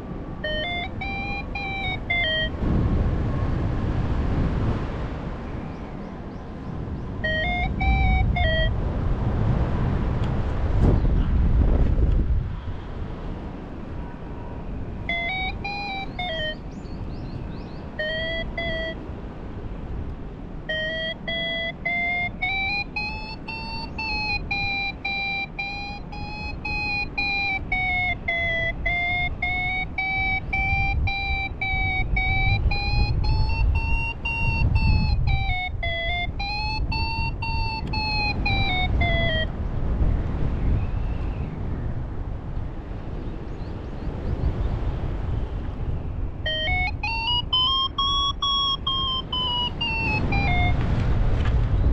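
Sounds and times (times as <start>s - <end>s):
variometer climb tone: 0.0s - 2.7s, 7.2s - 8.8s, 15.0s - 16.7s, 18.0s - 19.1s, 20.6s - 39.6s, 46.4s - 50.9s
wind buffeting microphone: 0.0s - 51.9s.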